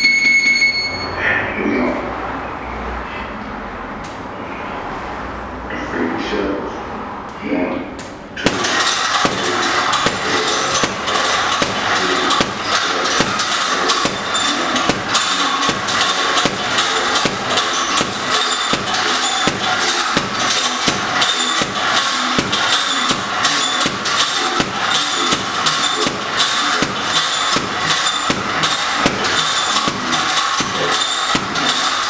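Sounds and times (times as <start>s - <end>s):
boxing gloves hitting heavy bag: 8.4s - 32.0s.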